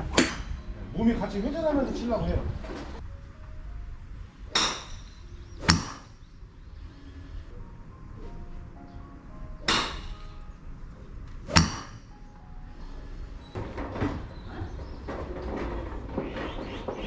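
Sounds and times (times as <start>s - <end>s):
golf driver striking ball: 4.6s - 6.2s, 9.7s - 10.1s, 11.5s - 12.0s.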